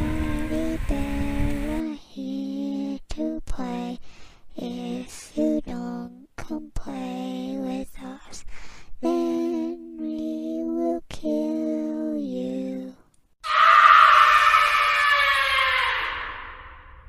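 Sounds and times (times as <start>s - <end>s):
wordless singing voice: 0.0s - 13.1s.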